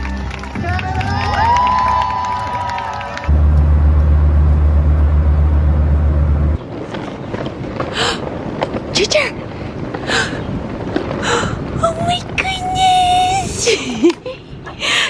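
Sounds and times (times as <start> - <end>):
street-show music: 0.0 - 5.8
roadside traffic noise: 2.6 - 11.2
vehicles whooshing past: 2.7 - 8.5
airliner cabin drone: 2.9 - 6.7.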